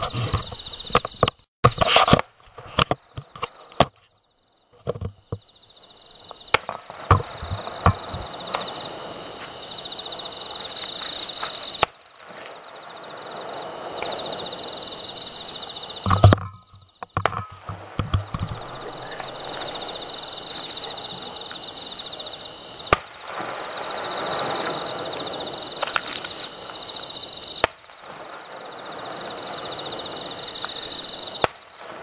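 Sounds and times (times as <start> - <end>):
insects chirping: 0.0 - 32.0
fireworks crackling hiss: 6.2 - 16.2, 17.6 - 32.0
distant fireworks bangs and pops: 6.3 - 9.5, 16.1 - 21.6, 22.8 - 32.0.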